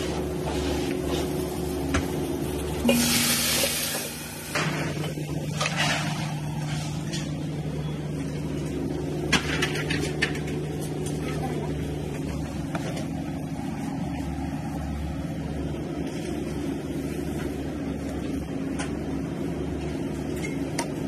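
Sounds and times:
kitchen equipment hum: 0.0s - 21.0s.

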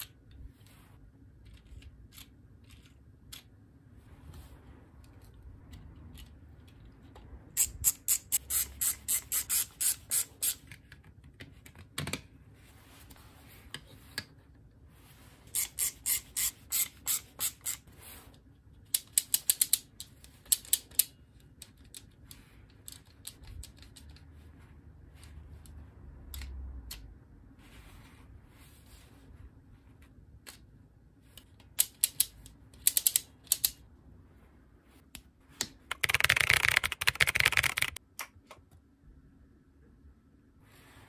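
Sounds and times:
plastic ratchet clicking: 31.8s - 33.8s.

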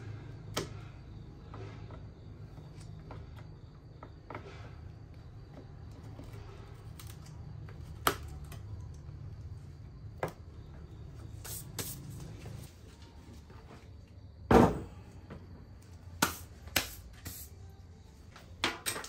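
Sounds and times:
metal case thud on wooden table: 14.5s - 14.9s.

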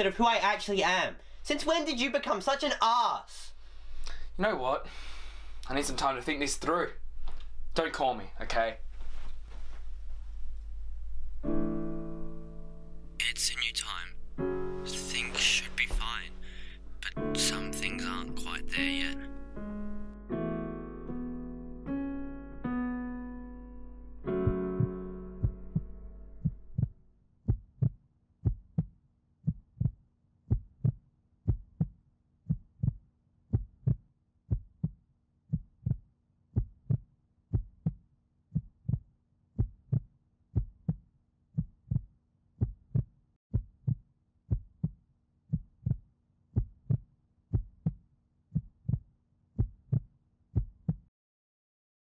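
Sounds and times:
piano chord: 9.9s - 27.0s
heartbeat thumps: 24.4s - 28.9s, 29.5s - 31.9s, 32.5s - 36.0s, 36.6s - 38.0s, 38.6s - 39.0s, 41.6s - 46.0s, 46.6s - 48.0s, 48.6s - 49.0s, 49.6s - 50.0s, 50.6s - 51.0s.

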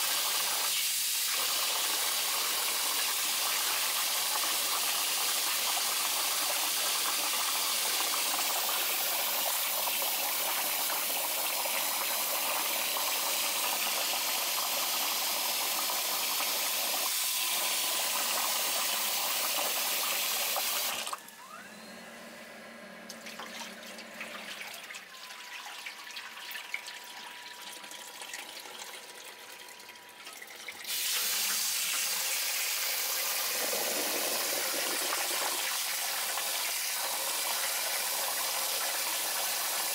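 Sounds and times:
tap water pouring into metal bowl: 23.1s - 39.9s.

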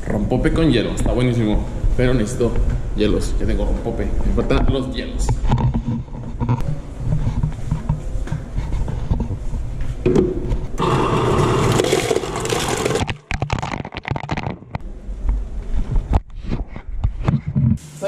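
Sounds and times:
ice cubes clattering into bucket: 10.8s - 14.3s.

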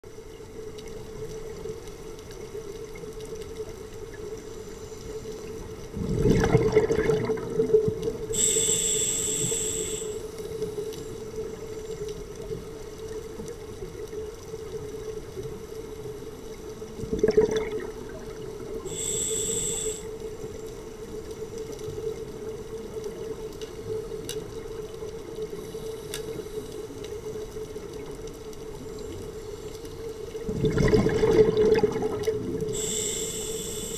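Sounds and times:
exhaled bubbles gurgling: 5.4s - 13.2s, 13.8s - 26.6s, 27.2s - 33.9s
regulator inhalation hiss: 8.3s - 10.9s, 18.8s - 20.2s, 32.7s - 33.9s
steady low hum: 8.3s - 11.0s.

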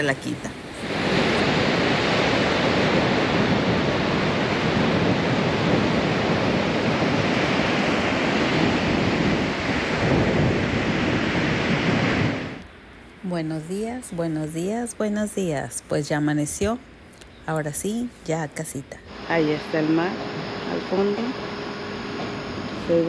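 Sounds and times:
ocean waves breaking on beach: 0.0s - 12.6s
wind on microphone: 0.6s - 12.7s.

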